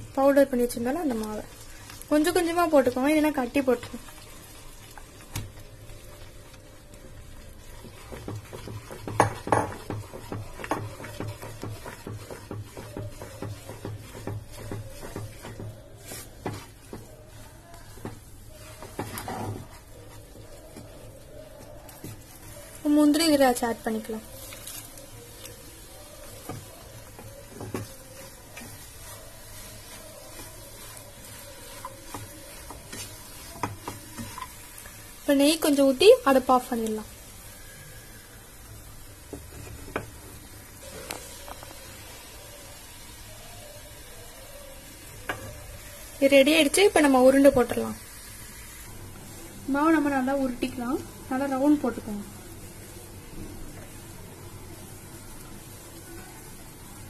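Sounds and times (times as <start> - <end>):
spatula scraping thick mix in pan: 7.0 - 42.4
spatula knocking against pan: 8.1 - 15.8.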